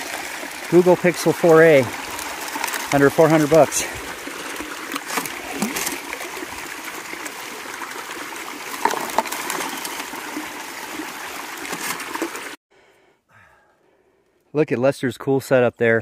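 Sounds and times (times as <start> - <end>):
water rushing with gravel: 0.0 - 12.6.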